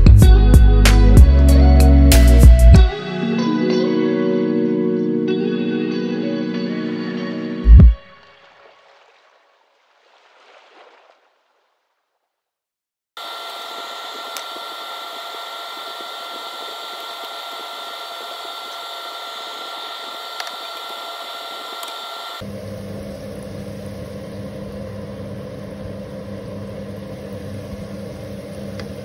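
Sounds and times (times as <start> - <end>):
small electric motor whining: 13.2 - 22.5.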